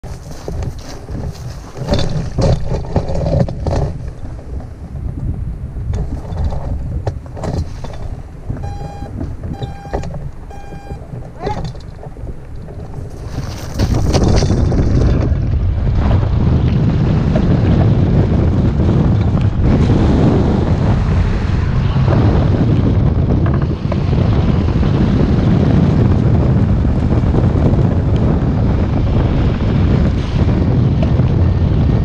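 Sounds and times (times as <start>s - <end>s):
wind buffeting microphone: 0.0s - 32.0s
short electronic beeps: 8.6s - 11.6s.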